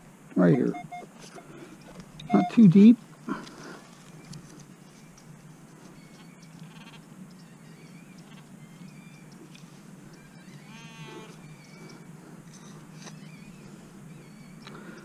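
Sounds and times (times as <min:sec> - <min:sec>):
metal detector pinpointer buzzing: 0:00.5 - 0:01.1, 0:02.2 - 0:02.7.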